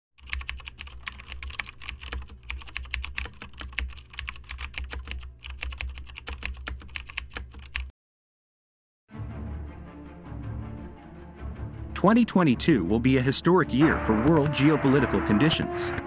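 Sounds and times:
keystroke clicks: 0.2s - 7.9s.

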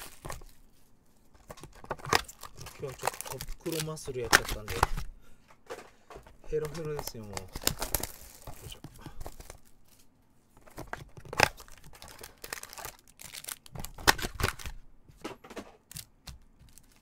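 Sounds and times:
cellophane wrappers crinkling: 0.0s - 0.8s, 1.4s - 5.1s, 6.4s - 14.8s, 15.9s - 17.0s
card packs clicking on table: 1.4s - 5.0s.

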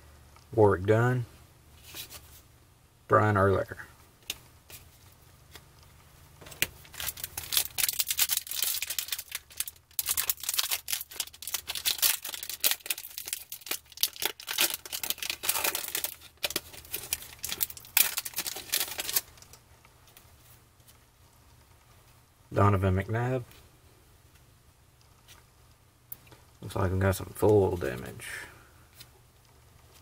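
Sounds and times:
foil pack tearing and crinkling: 6.6s - 19.4s.

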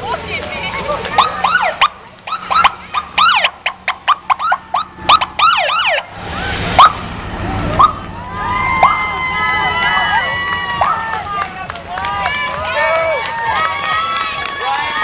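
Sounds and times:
motorcycle passing close: 0.0s - 12.6s
siren whooping rapidly: 1.2s - 11.5s.

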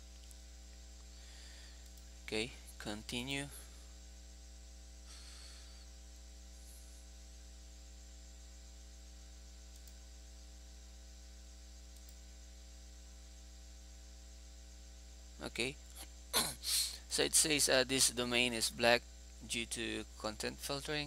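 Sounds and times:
faint electrical mains hum: 0.0s - 21.0s
faint hiss: 15.4s - 21.0s.

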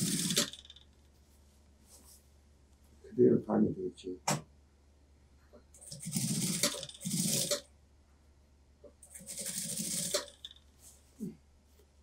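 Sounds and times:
sewing machine stitching: 0.0s - 0.8s, 5.8s - 7.7s, 9.0s - 10.6s.

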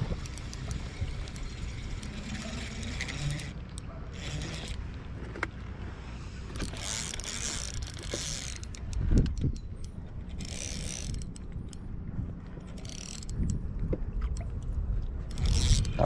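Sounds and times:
fishing reel whirring and clicking: 0.0s - 5.0s, 6.5s - 11.9s, 12.6s - 13.6s, 15.2s - 16.0s
wind on microphone: 8.8s - 16.0s.

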